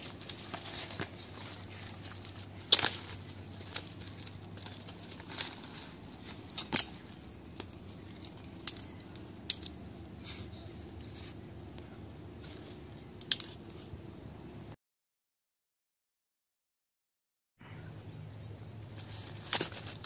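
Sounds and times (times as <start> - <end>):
dry twigs snapping: 0.0 - 11.1, 11.7 - 13.9, 18.8 - 20.0.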